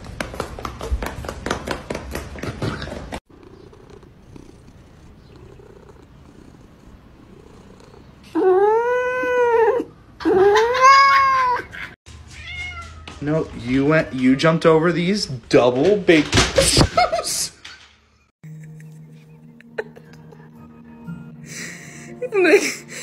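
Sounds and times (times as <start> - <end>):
cat meowing: 12.3 - 13.2.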